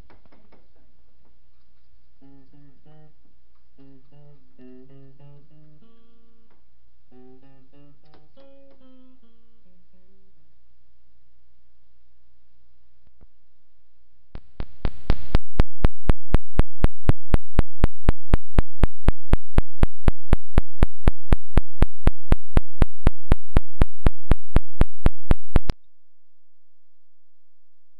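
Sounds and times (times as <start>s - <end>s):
low electrical hum: 0.0s - 14.4s.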